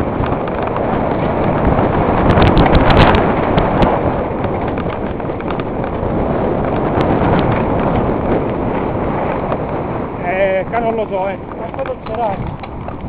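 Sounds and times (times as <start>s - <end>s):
bike rattling: 0.0s - 13.0s
clicks and knocks over bumps: 0.0s - 13.0s
tyres crunching on gravel: 10.4s - 13.0s.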